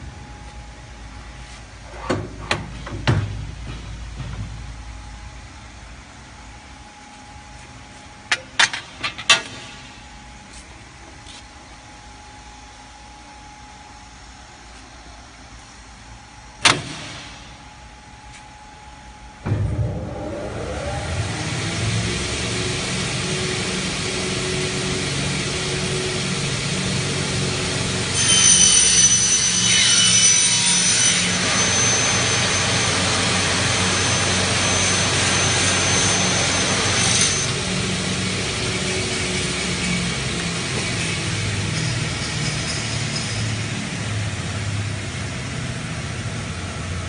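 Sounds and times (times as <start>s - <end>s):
saw motor hum: 19.7s - 41.4s
saw blades cutting aluminium: 25.6s - 43.6s.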